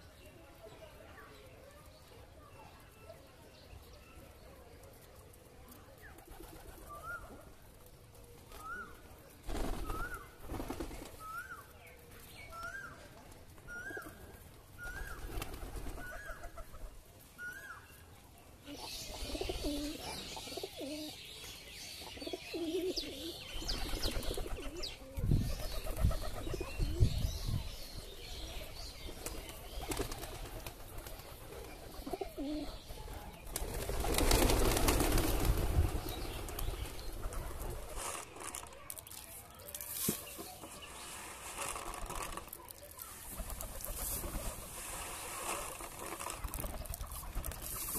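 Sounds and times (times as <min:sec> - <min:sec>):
wings flapping: 0:09.4 - 0:11.4, 0:14.9 - 0:16.9, 0:29.1 - 0:47.9
pigeons cooing: 0:18.7 - 0:21.2, 0:22.0 - 0:27.2, 0:29.8 - 0:33.0.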